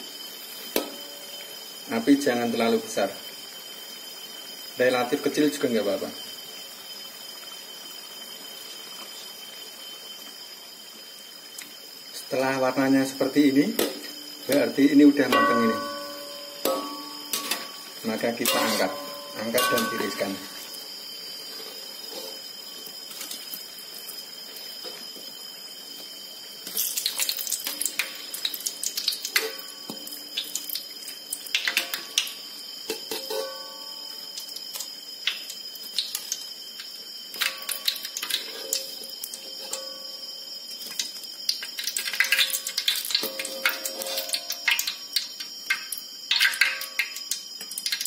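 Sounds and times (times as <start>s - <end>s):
faint high-pitched whine: 0.0s - 47.5s
food deep-frying in oil: 0.0s - 48.0s
metal spatula scraping a wok: 15.8s - 20.6s, 21.5s - 22.4s, 32.9s - 33.5s, 43.6s - 44.4s.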